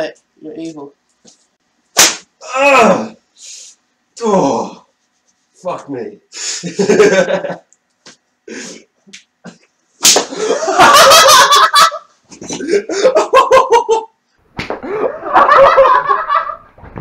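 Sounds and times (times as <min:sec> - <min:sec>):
whip crack: 0:01.9 - 0:02.3, 0:10.0 - 0:10.3
people laughing: 0:06.6 - 0:07.7, 0:10.3 - 0:14.1, 0:14.8 - 0:16.7.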